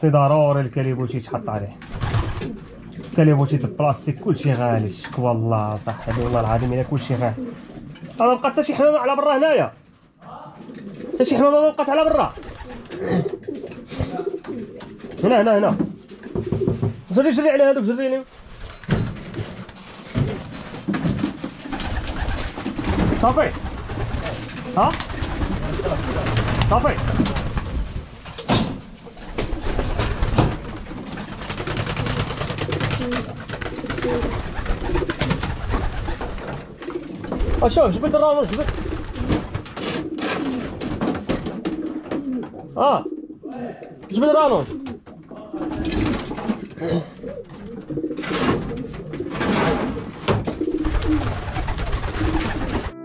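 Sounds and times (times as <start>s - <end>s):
pigeons cooing: 1.8s - 4.1s, 5.9s - 8.2s, 10.6s - 11.4s, 12.0s - 15.4s, 18.8s - 44.0s, 44.6s - 53.0s
wing flaps: 1.9s - 3.1s, 12.1s - 15.2s, 18.3s - 42.4s, 50.6s - 53.0s.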